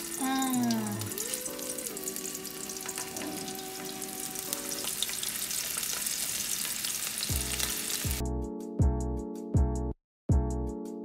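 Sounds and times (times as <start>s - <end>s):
fish frying in oil: 0.0s - 8.2s.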